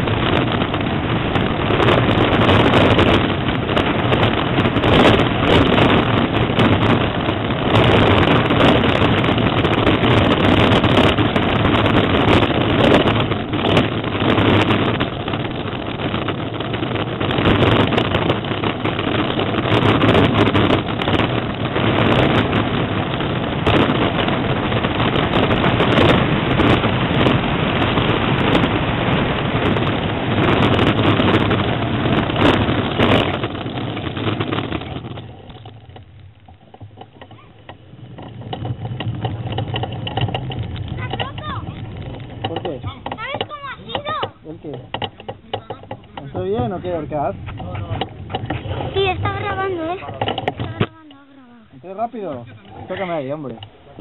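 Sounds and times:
tyres rumbling on asphalt: 0.0s - 54.0s
wind rushing on microphone: 0.0s - 54.0s.

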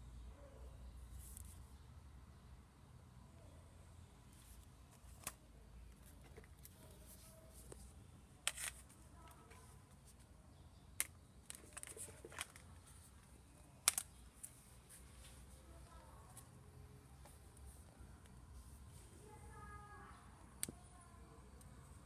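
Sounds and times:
faint low hum: 0.0s - 22.0s
phones clicking and tapping: 11.0s - 14.6s.

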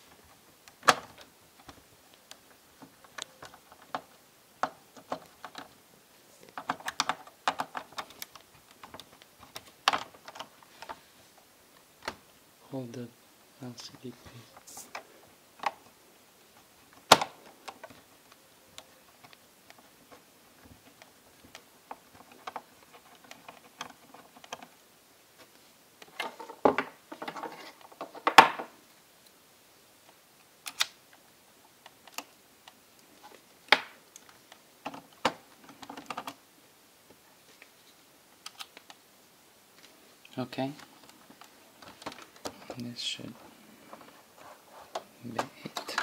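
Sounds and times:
plastic laptop parts clicking and rattling: 0.1s - 5.8s, 6.4s - 11.0s, 14.8s - 16.0s, 16.6s - 24.8s, 30.0s - 36.4s, 38.4s - 39.0s, 40.7s - 42.9s.

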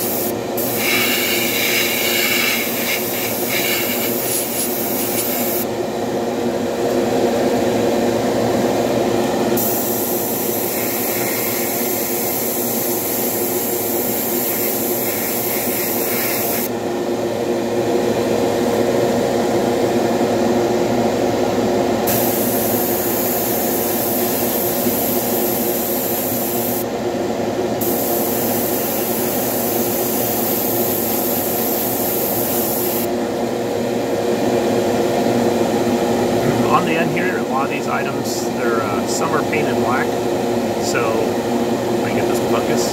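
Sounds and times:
airbrush hissing: 0.0s - 5.7s, 9.6s - 16.7s, 22.1s - 26.8s, 27.8s - 33.1s.

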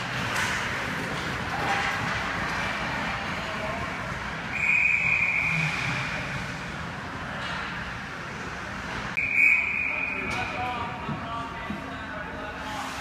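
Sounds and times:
referee whistle blasts: 4.5s - 5.6s, 9.2s - 10.4s.

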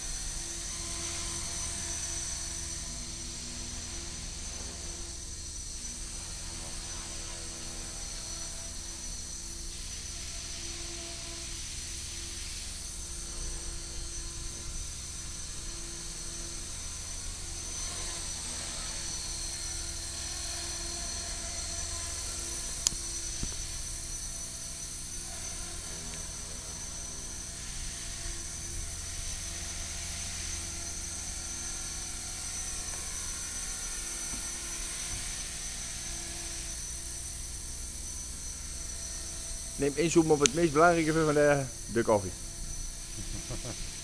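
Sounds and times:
rc helicopter motor whine: 0.0s - 44.0s
sharp click: 40.3s - 40.6s.

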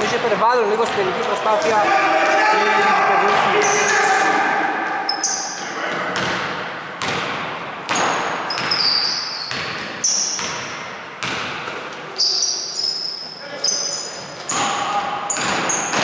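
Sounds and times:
sneakers squeaking on court: 4.9s - 16.0s
basketball bouncing on hardwood: 5.9s - 8.8s, 9.5s - 11.8s.

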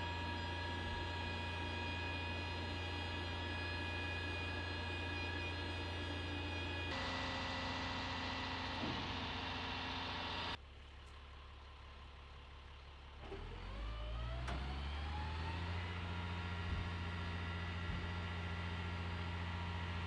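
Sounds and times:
mechanical whine rising: 0.0s - 10.6s
truck engine droning: 0.0s - 20.0s.

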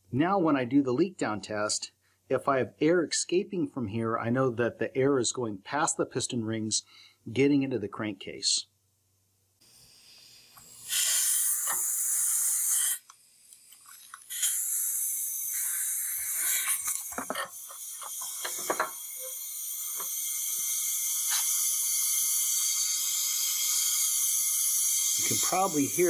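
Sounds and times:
compressed air hissing: 9.6s - 26.0s.

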